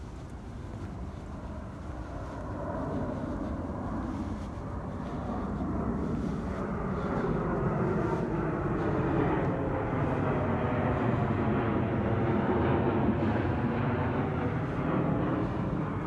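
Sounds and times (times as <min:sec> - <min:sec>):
distant engine rumble: 0:00.0 - 0:16.0.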